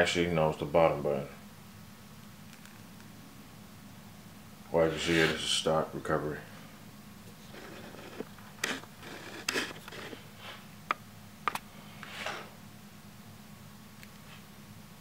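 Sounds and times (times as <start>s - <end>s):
faint steady hum: 0.0s - 15.0s
phone case rustling and scraping: 7.3s - 10.6s.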